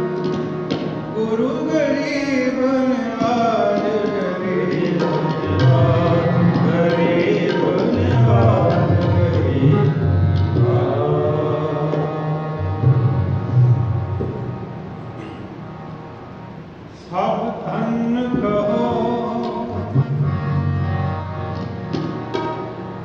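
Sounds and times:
harmonium melody: 0.0s - 23.0s
tabla bass strokes: 12.6s - 15.9s.

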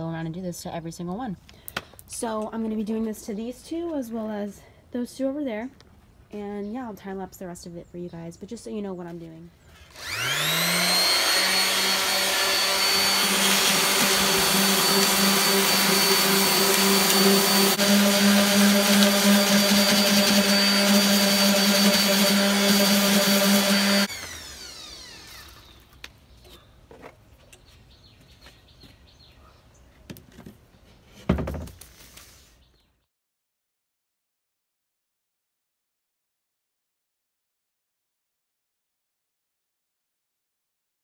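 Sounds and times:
orbital sander running: 9.9s - 25.8s
thump: 31.3s - 31.7s.

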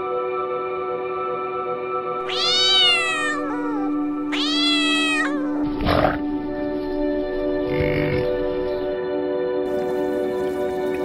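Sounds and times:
background music: 2.0s - 11.0s
cat meowing: 2.2s - 5.9s.

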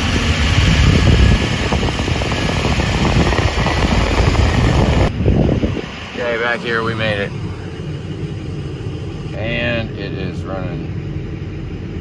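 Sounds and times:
truck engine noise: 0.0s - 12.0s
wind rushing over microphone: 0.0s - 12.0s.

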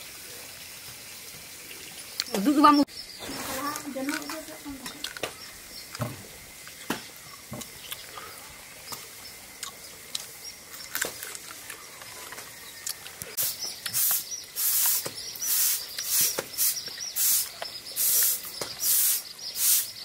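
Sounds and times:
wet chewing and lip smacks: 8.9s - 14.0s
airy hissing sucking noises: 13.1s - 20.0s.

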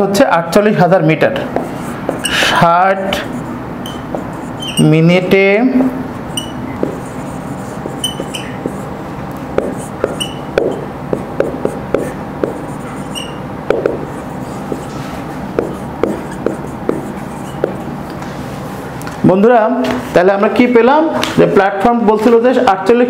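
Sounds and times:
steady background hum: 0.0s - 23.0s
marker squeaking on whiteboard: 1.3s - 18.2s.

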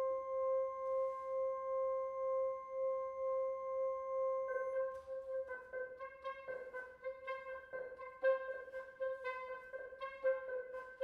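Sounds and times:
saxophones holding long note: 0.0s - 11.0s
shorter notes at changing pitches: 4.2s - 11.0s.

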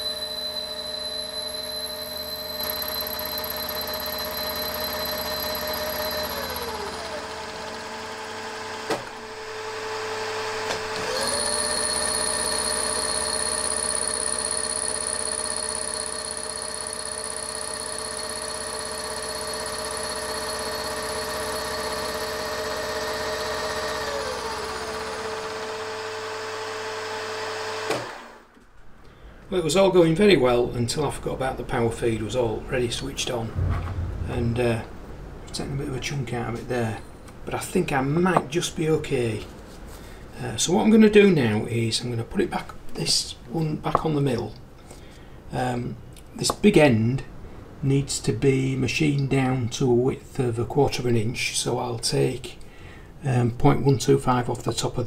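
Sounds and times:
milling machine spindle whine: 0.0s - 8.7s, 10.7s - 25.8s
higher motor whine: 0.0s - 26.4s.

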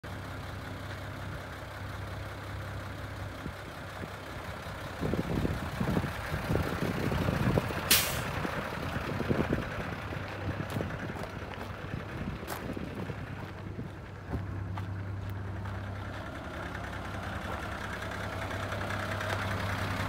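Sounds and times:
diesel engine idling: 0.0s - 20.0s
wind buffeting microphone: 4.9s - 15.0s
air hiss release: 7.9s - 8.3s.

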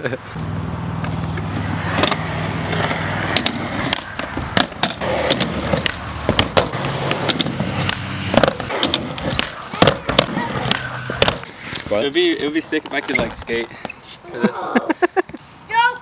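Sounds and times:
skateboard wheels rolling on concrete: 0.0s - 16.0s
skateboard clacks and knocks: 1.9s - 11.5s.

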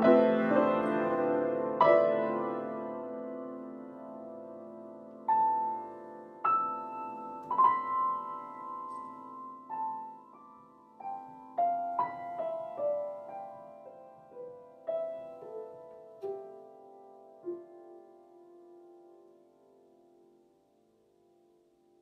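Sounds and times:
slow solo piano notes: 0.0s - 22.0s.

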